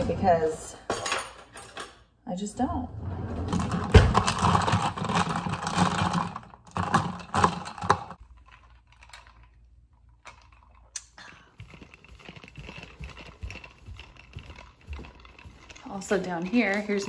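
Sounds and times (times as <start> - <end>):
shaker cup rattling: 4.5 - 17.0
soft footsteps: 11.5 - 17.0.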